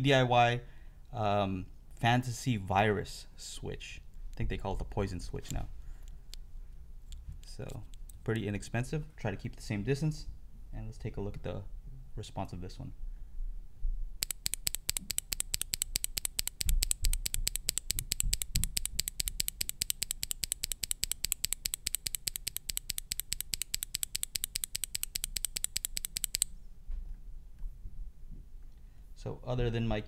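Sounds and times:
keyboard switch clicking: 14.2 - 26.5.

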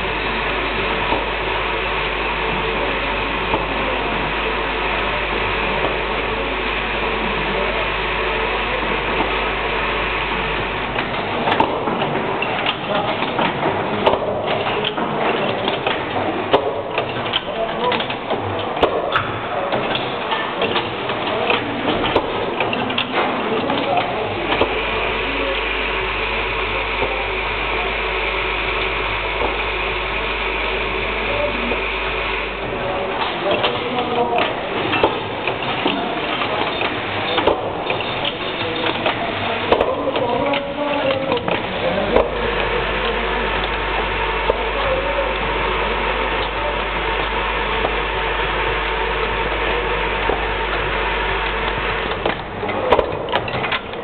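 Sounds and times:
welding machine drone and hiss: 14.5 - 54.0.

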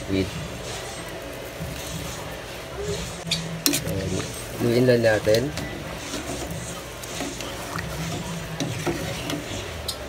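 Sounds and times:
ladle knocking and scraping pot: 3.6 - 9.7
ladle stirring water in pot: 3.6 - 10.0.

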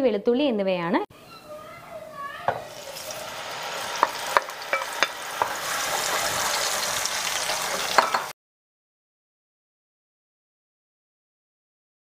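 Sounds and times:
paste sizzling in hot oil: 2.5 - 8.3
wooden spatula knocking on pan: 3.9 - 6.2.

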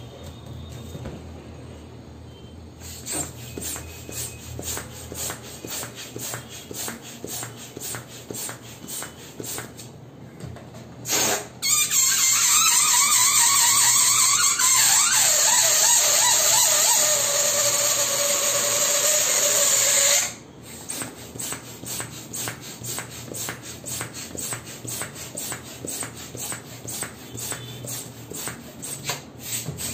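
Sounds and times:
air hissing from balloon: 2.8 - 9.9, 11.0 - 29.9
hands rubbing balloons squeaking: 2.9 - 9.8, 11.6 - 29.9
balloon neck squealing: 11.1 - 20.4.

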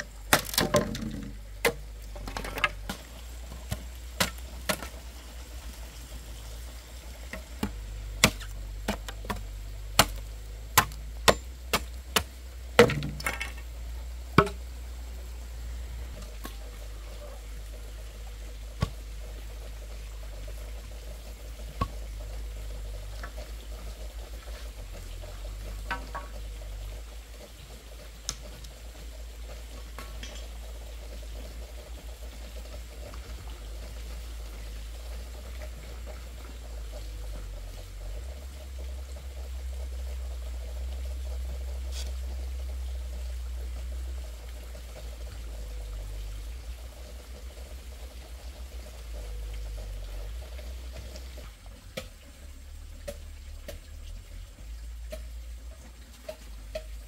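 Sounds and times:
low steady rumble: 0.0 - 57.0
water trickling: 0.0 - 57.0.

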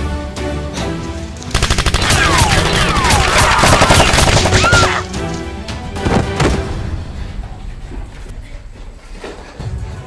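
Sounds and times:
background music: 0.0 - 10.0
machine-gun fire: 1.5 - 5.0.

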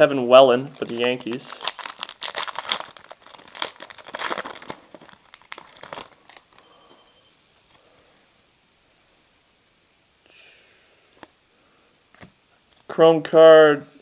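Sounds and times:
foil wrapper crinkling and tearing: 0.7 - 6.6.

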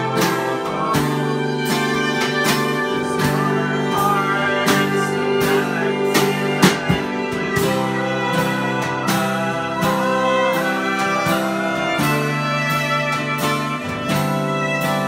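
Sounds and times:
bowed fiddles: 0.0 - 15.0
drums keeping a steady beat: 0.0 - 15.0
folk band playing: 0.0 - 15.0.

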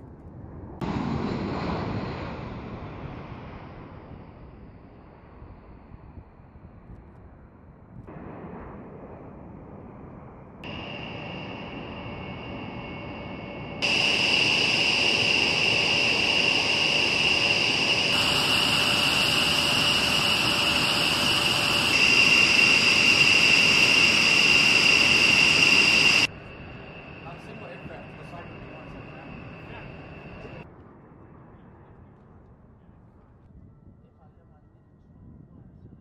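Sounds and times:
jet engines running: 0.8 - 5.8, 10.6 - 30.7.

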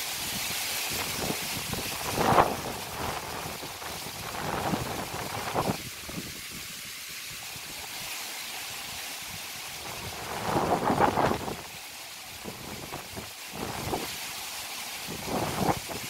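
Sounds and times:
wind gusting through trees: 0.0 - 16.0
wind buffeting microphone: 1.0 - 6.3, 9.9 - 11.6, 15.1 - 16.0.

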